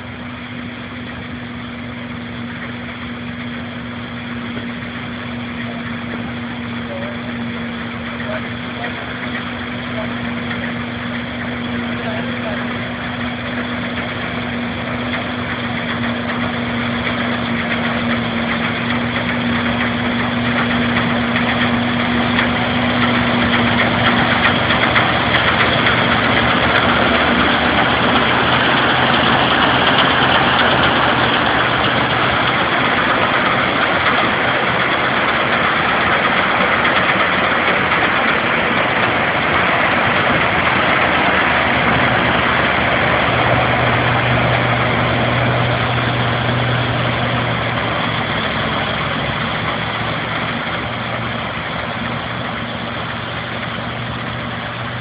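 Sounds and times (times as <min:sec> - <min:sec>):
combine harvester engine drone: 0:00.0 - 0:55.0.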